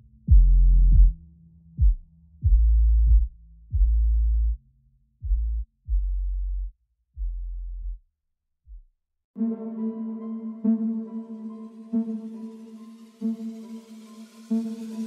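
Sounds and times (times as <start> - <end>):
electronic hip-hop deep bass notes: 0.0 - 4.6.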